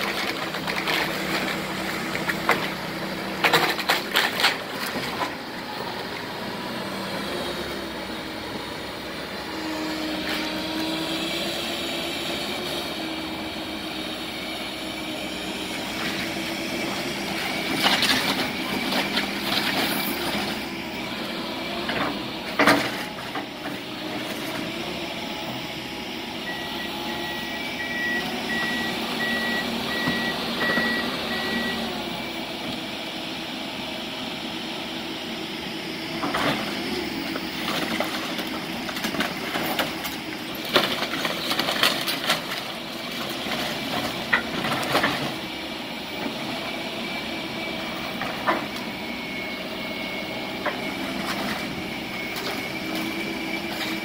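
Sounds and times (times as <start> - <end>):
debris crashing and clunking: 0.0 - 5.4, 16.9 - 20.8, 21.7 - 24.8, 36.2 - 45.4, 50.6 - 54.0
heavy demolition machinery running: 0.0 - 54.0
back-up alarm beeping: 26.5 - 31.9.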